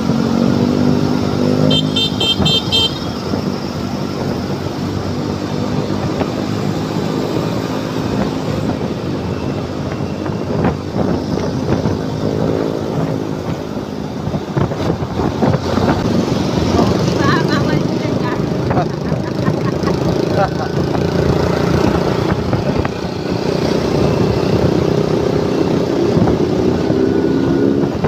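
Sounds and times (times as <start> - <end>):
passing motorcycles and cars: 0.0 - 28.0
road and wind noise: 0.0 - 28.0
scooter engine running: 15.6 - 25.0.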